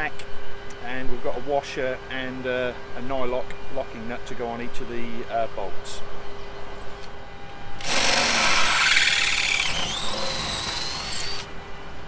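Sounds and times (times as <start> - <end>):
drill whining through metal: 7.8 - 11.5.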